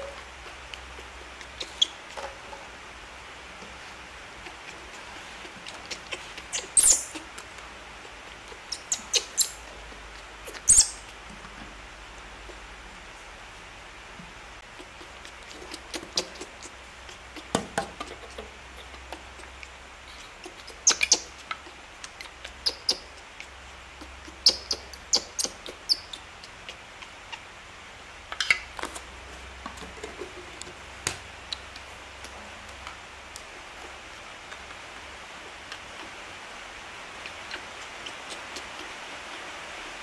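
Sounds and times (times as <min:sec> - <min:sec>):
baby monkey squeaking: 0:01.0 - 0:02.1, 0:05.8 - 0:07.3, 0:08.6 - 0:09.7, 0:10.4 - 0:11.1, 0:20.1 - 0:23.2, 0:24.0 - 0:27.4.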